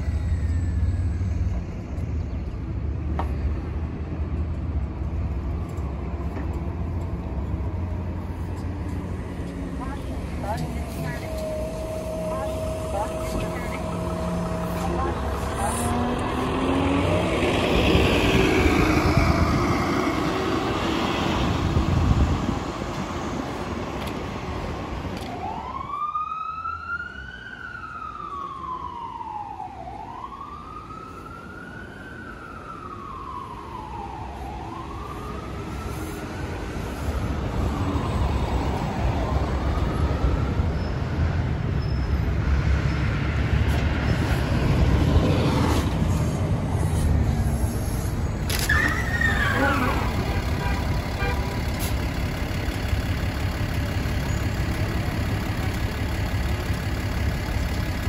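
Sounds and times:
road traffic noise: 0.0s - 58.0s
heavy vehicle engine passing: 5.4s - 25.2s
emergency vehicle siren wailing: 5.4s - 41.5s, 47.4s - 58.0s.

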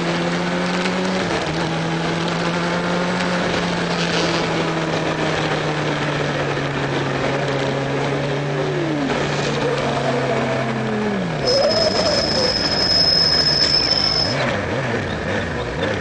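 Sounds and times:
motorcycle engine at high revs: 0.0s - 16.0s
thin high whine: 11.4s - 14.4s.

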